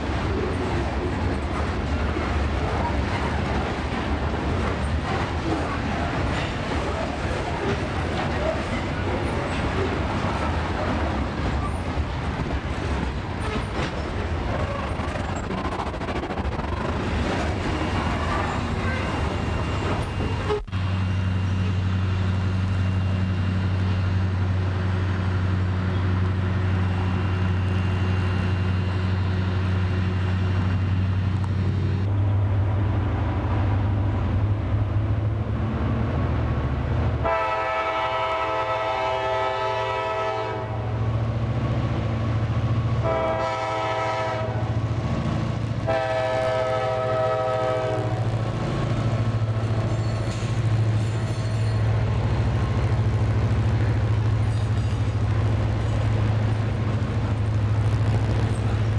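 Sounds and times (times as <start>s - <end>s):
wheel and rail clatter: 0.0s - 20.8s, 48.2s - 58.9s
low train hum: 0.0s - 58.9s
train cars rolling past: 0.0s - 58.9s
train air horn: 37.2s - 40.9s, 43.0s - 44.8s, 45.8s - 48.2s.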